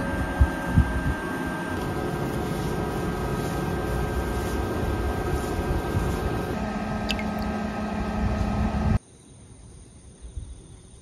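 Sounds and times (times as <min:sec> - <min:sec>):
air conditioner humming: 0:00.0 - 0:09.0
water draining into plastic bucket: 0:07.0 - 0:07.6.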